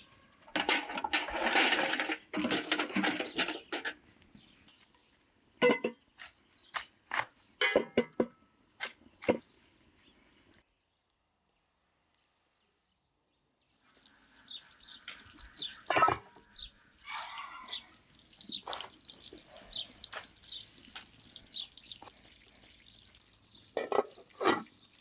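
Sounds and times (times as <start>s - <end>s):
aluminium pot lid clanking: 0.5s - 4.0s, 5.6s - 6.0s, 7.6s - 8.3s
clinks and knocks: 0.5s - 4.0s, 5.6s - 6.3s, 7.1s - 8.4s, 15.9s - 16.4s, 23.8s - 24.7s
birds chirping: 3.0s - 11.0s, 12.5s - 23.8s.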